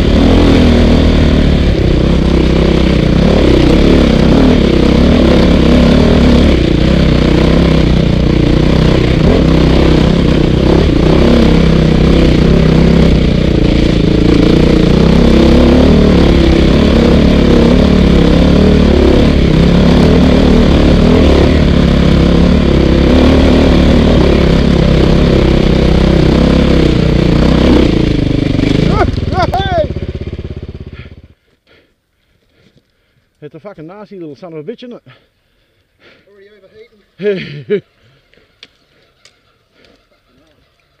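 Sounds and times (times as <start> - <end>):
dirt bike engine revving: 0.0 - 31.4.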